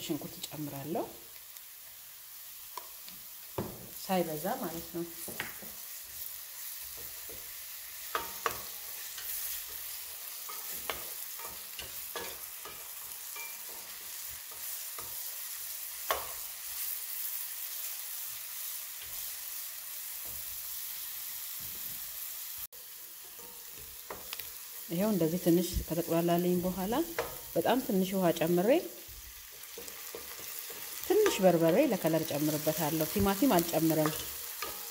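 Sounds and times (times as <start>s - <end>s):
onion sizzling in oil: 0.0s - 34.9s
spoon clicking against pan: 16.0s - 16.4s, 34.0s - 34.9s.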